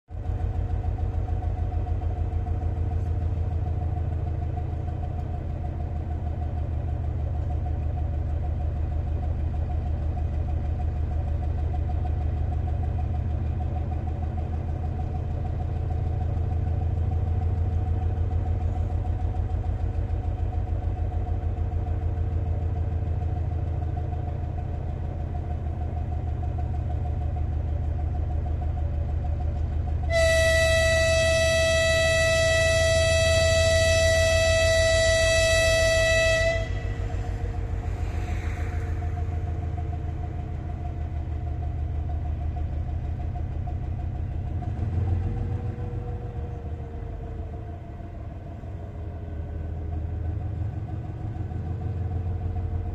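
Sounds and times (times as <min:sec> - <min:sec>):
diesel locomotive engine idling: 0:00.1 - 0:52.9
steady whine: 0:30.1 - 0:43.2.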